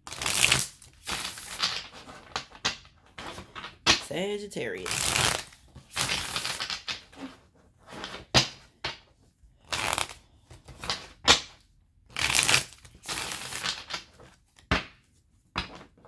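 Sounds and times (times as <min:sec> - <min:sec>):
cards being shuffled: 0:00.1 - 0:03.7, 0:04.8 - 0:08.4, 0:09.6 - 0:11.1, 0:12.1 - 0:14.7.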